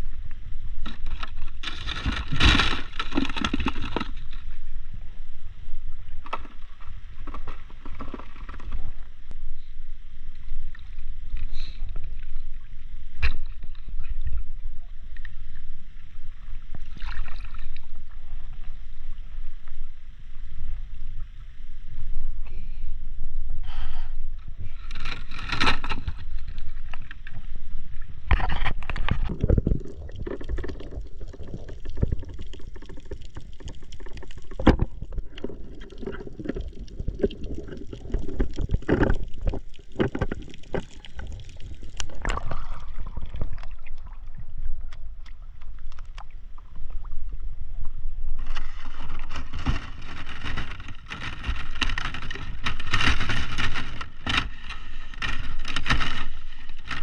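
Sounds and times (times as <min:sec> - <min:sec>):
water splashing and sloshing: 0:00.0 - 0:09.4, 0:10.3 - 0:19.8, 0:24.7 - 0:57.0
muffled underwater rush: 0:26.1 - 0:57.0.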